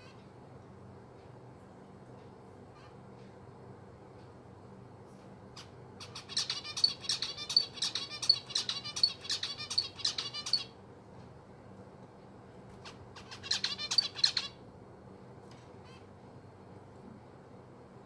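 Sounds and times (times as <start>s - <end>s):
finch chirping: 5.6s - 10.8s, 12.8s - 14.6s.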